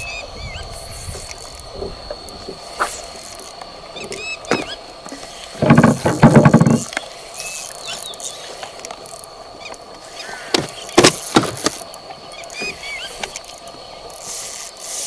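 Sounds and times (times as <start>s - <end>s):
sharp knocks: 5.6s - 6.9s, 10.5s - 11.8s
spinning reel gears clicking: 11.2s - 15.0s.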